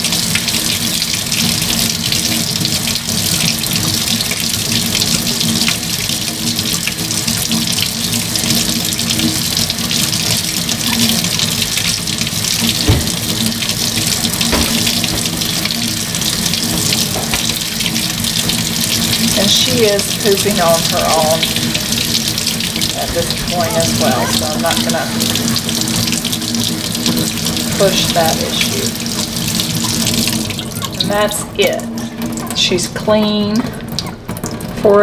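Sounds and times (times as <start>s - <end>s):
water running from sink tap: 0.0s - 35.0s
soft knocks: 12.8s - 13.4s, 14.4s - 15.6s.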